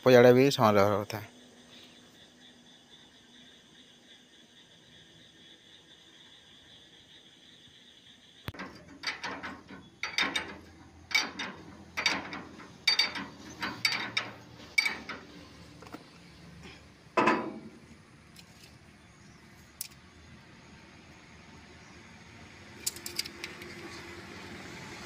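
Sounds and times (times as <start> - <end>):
spanner clicking and scraping metal: 8.5 - 16.2, 17.2 - 18.8, 22.8 - 24.0
loud metal clank: 8.6 - 15.5, 16.7 - 17.9.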